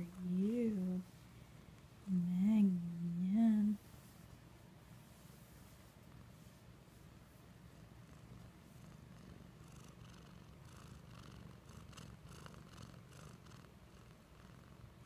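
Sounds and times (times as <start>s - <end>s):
faint rustling: 0.0s - 9.0s
kitten purring: 7.6s - 15.0s.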